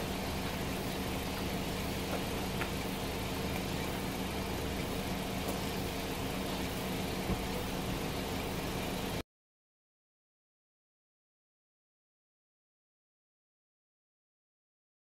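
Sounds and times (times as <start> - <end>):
car engine idling: 0.0 - 9.2.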